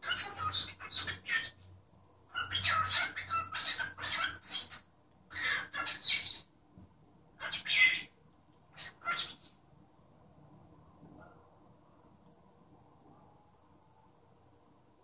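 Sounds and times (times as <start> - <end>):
cockatiel harsh rapid calls: 0.0 - 1.6, 2.3 - 6.4, 8.8 - 9.5.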